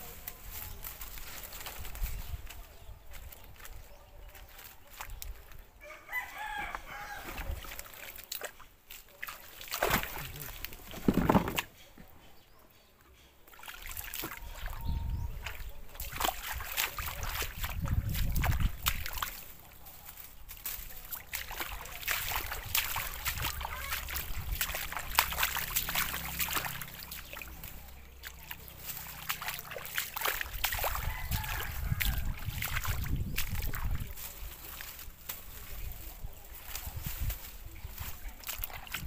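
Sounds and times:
water splashing and sloshing: 0:06.7 - 0:11.9, 0:13.4 - 0:39.0.

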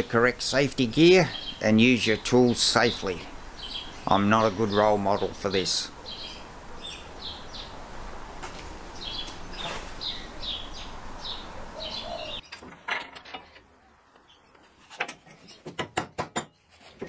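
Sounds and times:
steady background hiss: 0:00.0 - 0:14.6
bird chirping: 0:01.1 - 0:07.8, 0:08.9 - 0:12.6.

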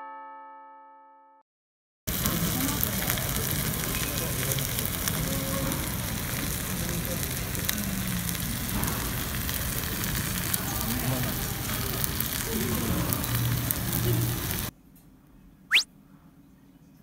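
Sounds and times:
food sizzling in stone bowl: 0:02.1 - 0:14.7.

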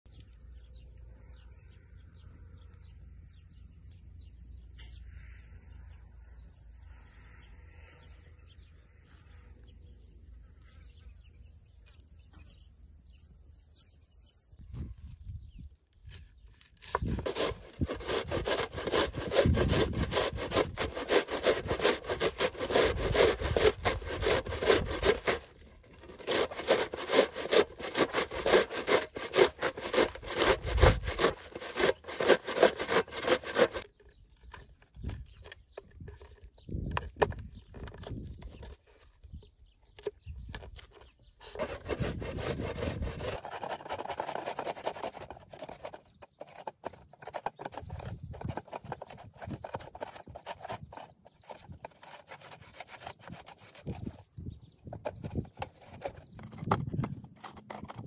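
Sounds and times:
scrapes and knocks: 0:16.6 - 0:39.1, 0:39.9 - 0:58.0
onion grated on metal grater: 0:16.7 - 0:33.9, 0:41.5 - 0:54.1.

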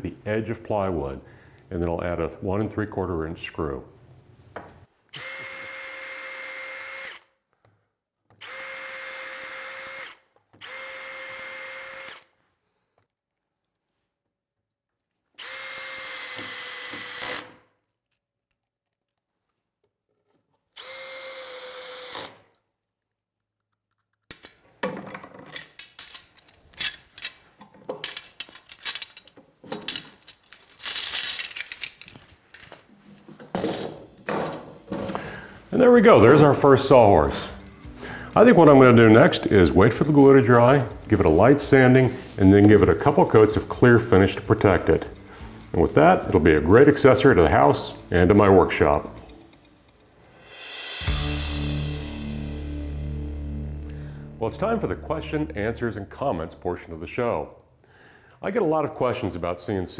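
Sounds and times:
cordless drill whining: 0:05.1 - 0:07.3, 0:08.3 - 0:12.4, 0:15.4 - 0:17.6, 0:20.8 - 0:22.5.

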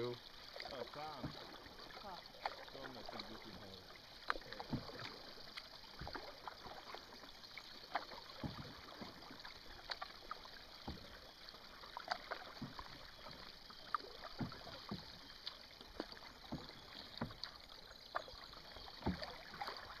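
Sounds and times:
canoe paddles dipping in water: 0:00.0 - 0:20.0
water splashes and drips: 0:00.0 - 0:20.0.

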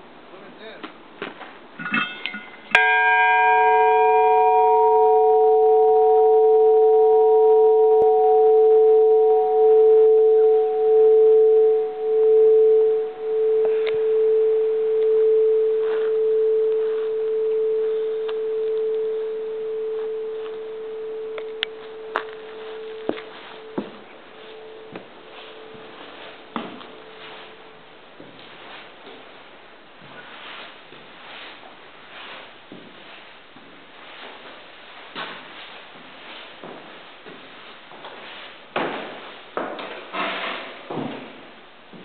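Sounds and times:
church bell ringing: 0:02.2 - 0:26.3.

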